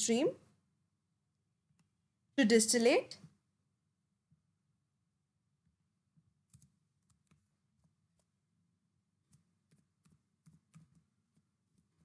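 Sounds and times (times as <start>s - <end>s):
computer keyboard typing: 6.4s - 8.4s, 9.2s - 12.0s.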